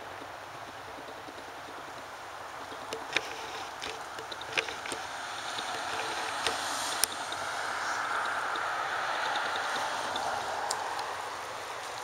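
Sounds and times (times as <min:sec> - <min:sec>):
outdoor rushing noise: 0:00.0 - 0:12.0
sharp light clicks: 0:02.7 - 0:07.5, 0:08.2 - 0:11.1.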